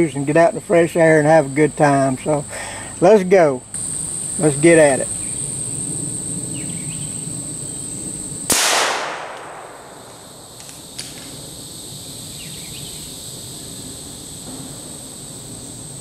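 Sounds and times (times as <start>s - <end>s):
insects chirring: 0.0s - 16.0s
rifle shot: 8.5s - 10.2s.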